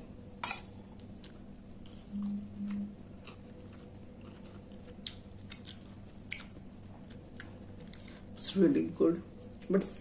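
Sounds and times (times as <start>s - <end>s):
person chewing: 0.4s - 8.4s.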